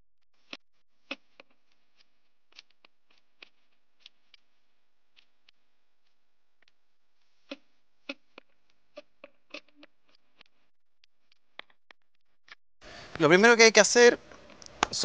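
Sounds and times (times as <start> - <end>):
faint clicks and ticks: 0.4 - 12.2.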